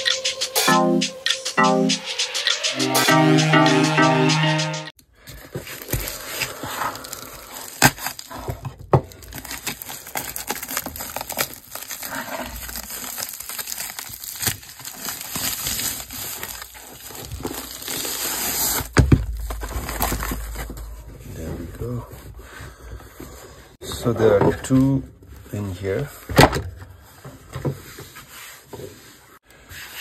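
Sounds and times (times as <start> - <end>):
plastic crinkling and rustling: 5.2 - 21.0.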